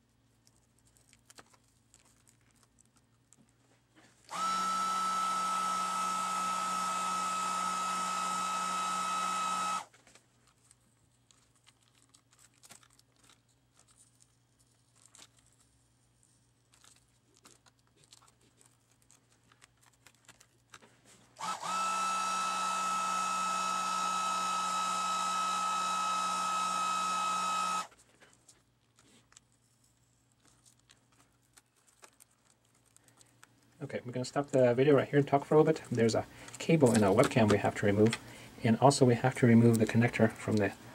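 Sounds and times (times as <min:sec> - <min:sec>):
heat gun fan with whine: 0:04.0 - 0:10.1, 0:20.9 - 0:28.0
faint clicks and scraping: 0:09.9 - 0:21.4, 0:27.9 - 0:34.8.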